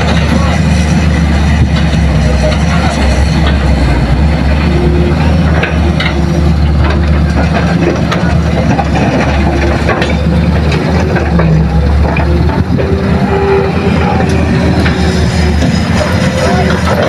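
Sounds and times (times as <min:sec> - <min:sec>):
heavy diesel engines running: 0:00.0 - 0:17.0
knocks and clatter: 0:05.2 - 0:13.4.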